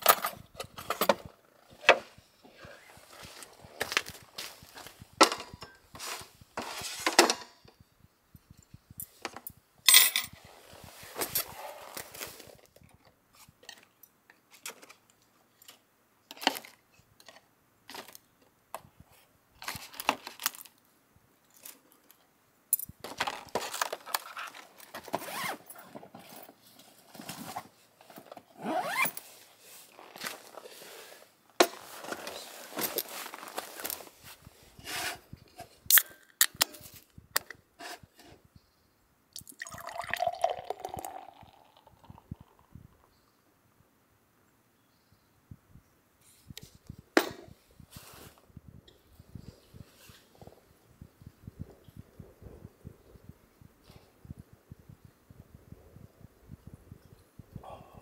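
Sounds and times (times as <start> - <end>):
utensils clattering on wooden table: 5.2 - 7.6, 9.2 - 10.4.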